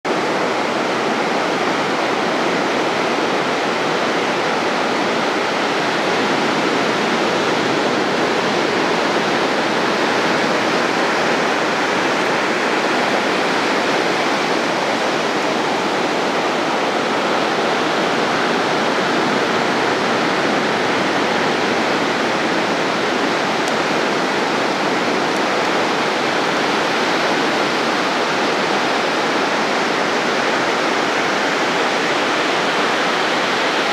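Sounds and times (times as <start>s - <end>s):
small waves breaking on shore: 0.1s - 33.9s.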